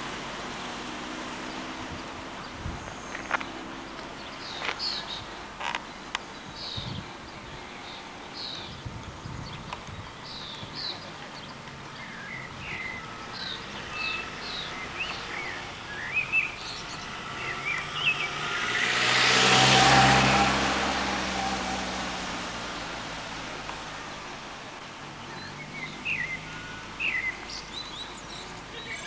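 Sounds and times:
birds chirping: 0.0 - 29.0
car driving past: 12.2 - 28.0.

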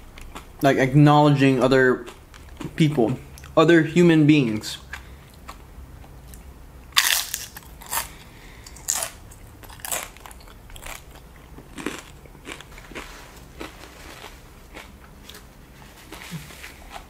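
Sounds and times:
chips crunching when chewed: 7.0 - 17.0.

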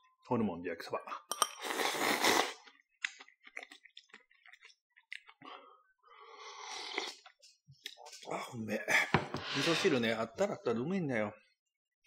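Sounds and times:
person slurping noodles: 1.6 - 2.6, 6.3 - 7.4, 9.3 - 10.0
wet chewing: 2.5 - 5.5.

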